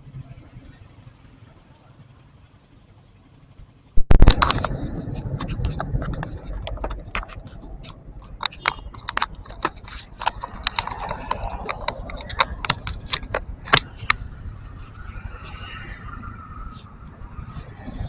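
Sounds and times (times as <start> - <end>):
steady low rumble: 3.9 - 18.0
taps and knocks on camera housing: 5.4 - 14.3.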